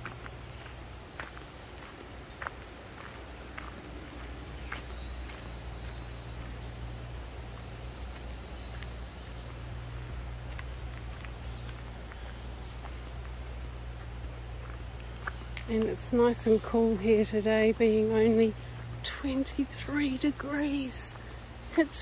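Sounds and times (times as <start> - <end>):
footsteps on leaf litter: 0.0 - 17.3
steady low rumble: 0.0 - 22.0
high-pitched insect chorus: 0.3 - 22.0.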